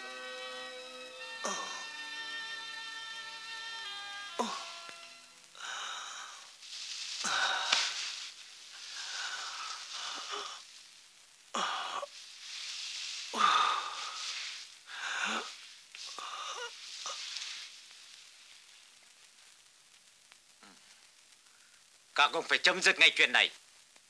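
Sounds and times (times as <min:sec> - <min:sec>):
man groaning and gasping: 0:01.4 - 0:02.0.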